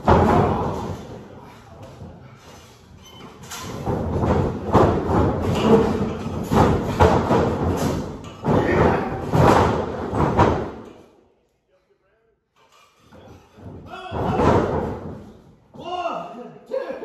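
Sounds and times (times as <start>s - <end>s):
heavy thumps on wrestling mat: 3.7s - 10.8s.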